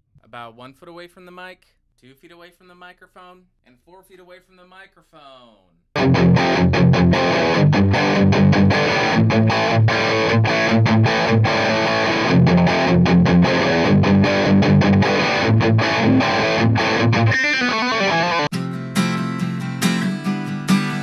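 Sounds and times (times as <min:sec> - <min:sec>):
acoustic guitar strumming: 0:06.0 - 0:21.0
distorted electric guitar riff: 0:06.0 - 0:21.0.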